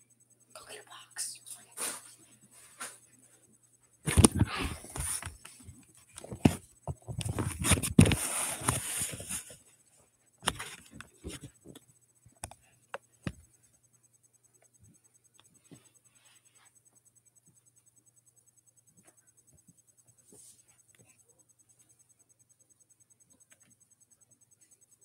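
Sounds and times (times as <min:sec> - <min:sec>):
rustling and clattering: 0:04.0 - 0:11.9
sharp clicks and knocks: 0:10.4 - 0:13.5.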